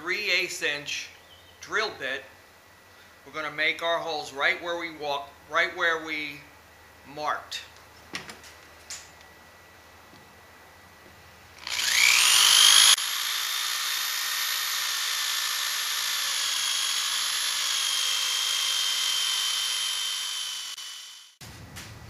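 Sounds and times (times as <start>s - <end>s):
electric drill whining: 11.6s - 21.4s.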